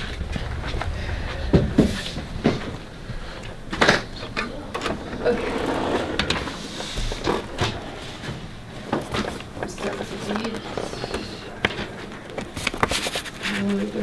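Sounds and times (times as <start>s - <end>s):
metal drawer sliding open: 3.8s - 8.3s.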